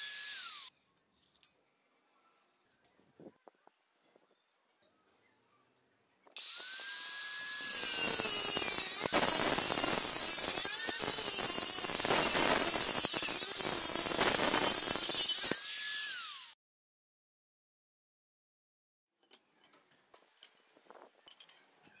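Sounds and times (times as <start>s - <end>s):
angle grinder motor whine: 0.0s - 0.7s, 6.4s - 16.5s
disc grinding through steel tubing: 6.4s - 16.5s.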